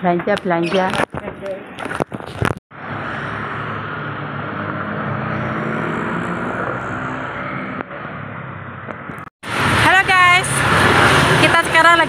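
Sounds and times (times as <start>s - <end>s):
cars passing: 2.7s - 12.0s
motorcycles passing: 2.8s - 12.0s.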